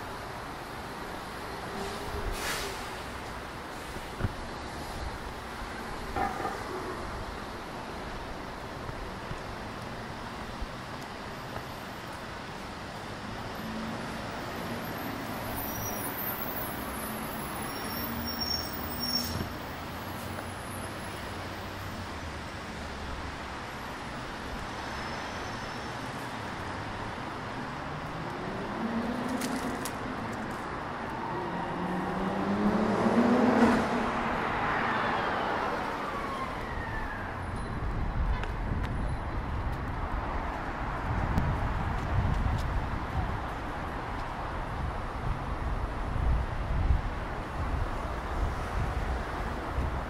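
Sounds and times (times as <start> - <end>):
city traffic noise: 0.0 - 50.0
vehicle engine accelerating past: 31.5 - 34.3.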